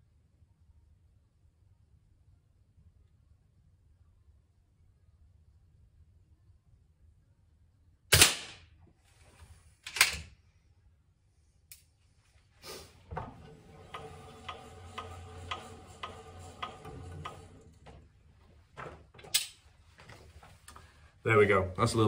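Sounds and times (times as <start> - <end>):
air rifle shot: 8.1 - 8.7.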